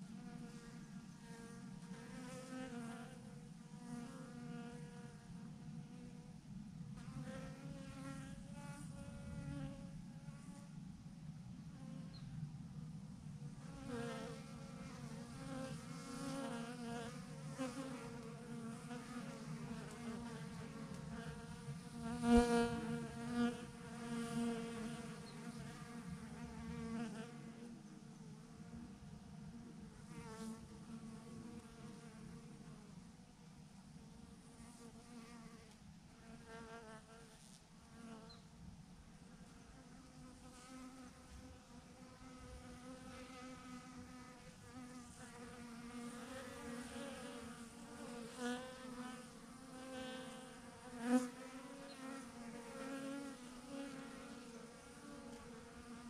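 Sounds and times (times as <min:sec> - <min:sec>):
single bee flying past: 0:00.0 - 0:06.3, 0:13.5 - 0:33.0, 0:39.4 - 0:56.0
swarm of bees buzzing: 0:13.6 - 0:27.8, 0:39.9 - 0:56.0.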